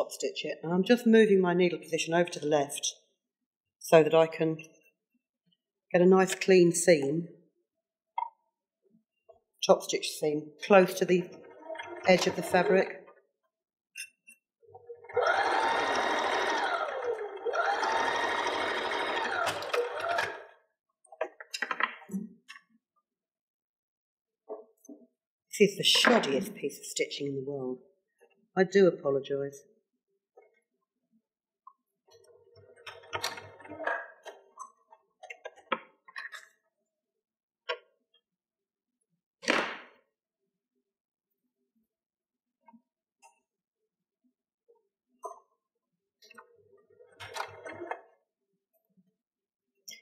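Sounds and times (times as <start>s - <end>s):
sewing machine stitching: 11.2s - 12.8s, 14.9s - 20.6s.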